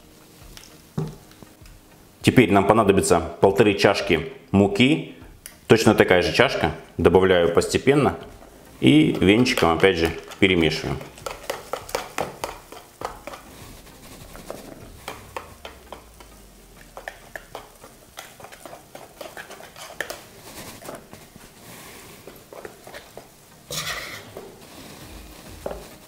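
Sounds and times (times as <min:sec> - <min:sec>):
whisk clicking against bowl: 0:09.1 - 0:13.5, 0:15.0 - 0:20.3.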